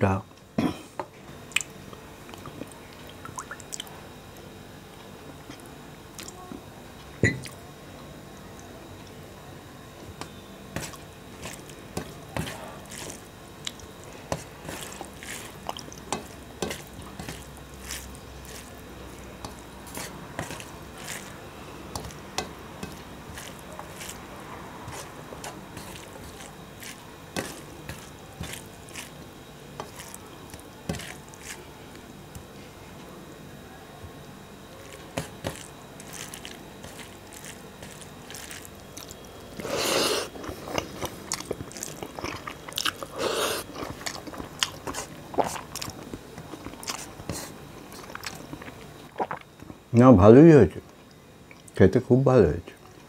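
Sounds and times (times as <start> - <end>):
fingers squishing rice and gravy: 10.0 - 32.6, 34.7 - 49.7.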